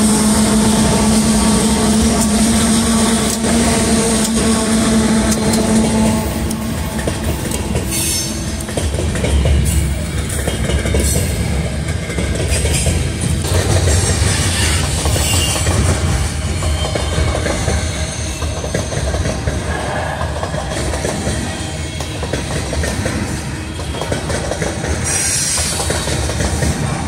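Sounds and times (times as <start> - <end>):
train wheels clicking over rails: 0.0 - 27.0
high wheel squeal: 4.3 - 8.6, 14.0 - 20.4.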